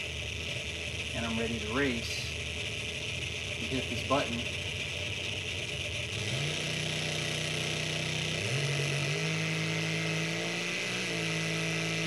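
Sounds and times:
drag car engine running hard: 0:00.0 - 0:12.0.

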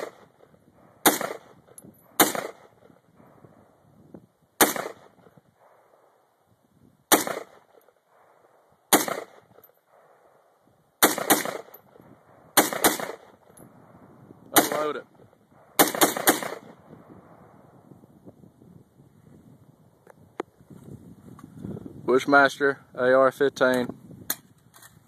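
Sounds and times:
rifle shots with echo: 0:00.0 - 0:03.8, 0:04.6 - 0:06.3, 0:07.1 - 0:13.4, 0:14.6 - 0:17.4.

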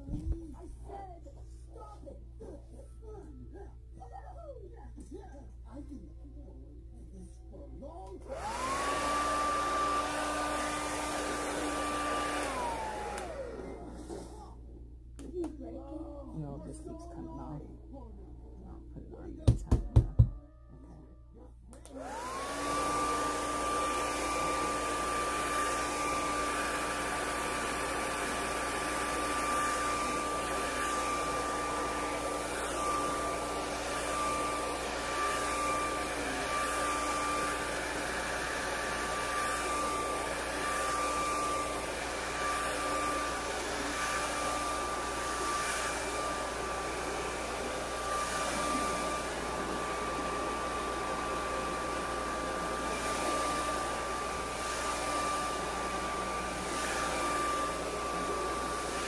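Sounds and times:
hair dryer blowing: 0:08.2 - 0:15.8, 0:21.8 - 0:59.0.

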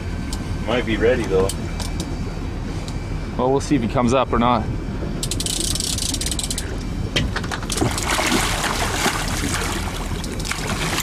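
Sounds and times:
fishing reel drag clicking: 0:05.2 - 0:06.7
fish splashing at the surface: 0:07.8 - 0:11.0.

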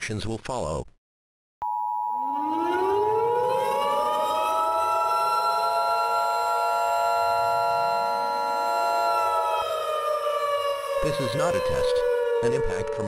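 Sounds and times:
two-tone attention signal: 0:01.6 - 0:03.3
civil defense siren wailing: 0:02.2 - 0:13.0.

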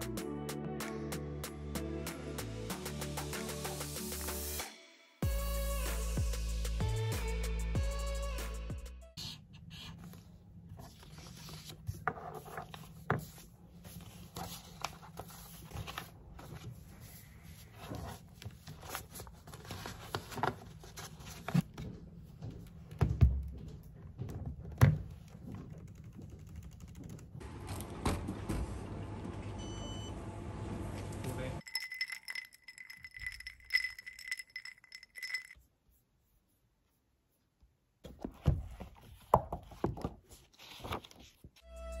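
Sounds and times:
paper sheets rustling and sliding: 0:10.8 - 0:21.6, 0:38.7 - 0:41.5
shop background hum: 0:27.3 - 0:33.7.

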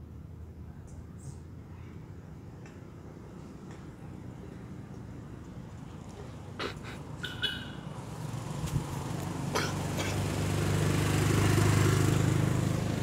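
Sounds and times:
vehicle engine passing by: 0:05.2 - 0:13.0.

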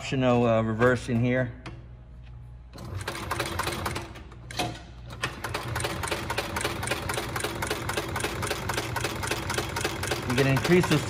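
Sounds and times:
sewing machine clattering: 0:02.8 - 0:04.1, 0:05.1 - 0:11.0.

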